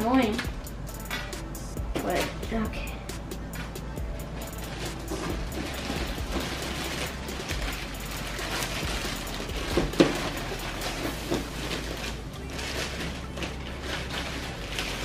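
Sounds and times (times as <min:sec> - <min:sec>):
plastic wrap crinkling: 0:04.2 - 0:15.0.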